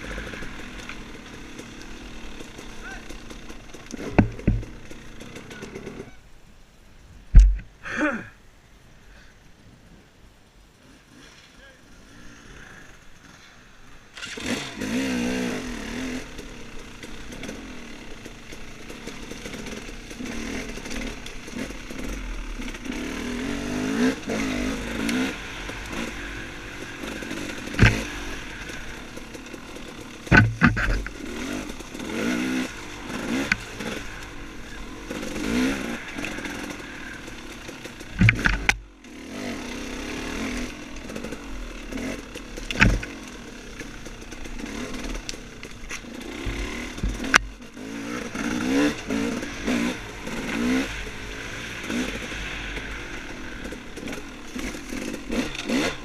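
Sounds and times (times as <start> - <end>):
dirt bike engine revving: 0.0 - 6.2, 10.8 - 56.0
sharp knocks: 4.0 - 4.8, 30.3 - 31.1, 42.7 - 43.1.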